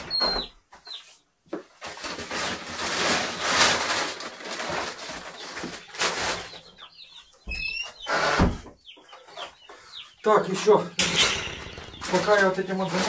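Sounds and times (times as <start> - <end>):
rustling feed and sacks: 0.0 - 13.0
chick peeping: 4.9 - 13.0.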